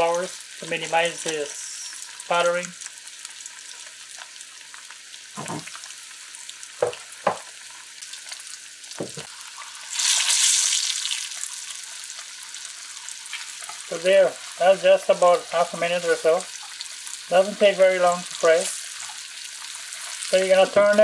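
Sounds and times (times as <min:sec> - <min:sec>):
eggs sizzling in hot oil: 0:00.0 - 0:21.0.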